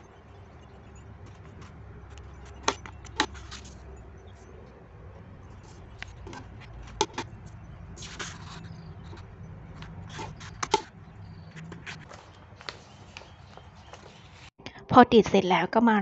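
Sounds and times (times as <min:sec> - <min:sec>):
paper rustling: 0:02.4 - 0:04.5, 0:05.6 - 0:14.5
tape unrolling rasp: 0:07.9 - 0:10.9.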